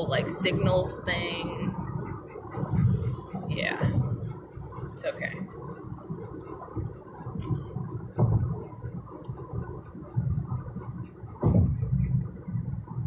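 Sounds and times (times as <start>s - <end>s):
car cabin road rumble: 0.0s - 13.0s
short thumps: 11.4s - 12.2s.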